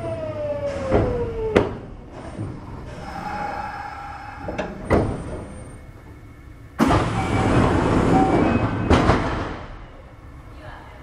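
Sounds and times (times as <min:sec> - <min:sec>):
loud rush of train noise: 0:00.7 - 0:11.0
train clunk: 0:06.8 - 0:09.9.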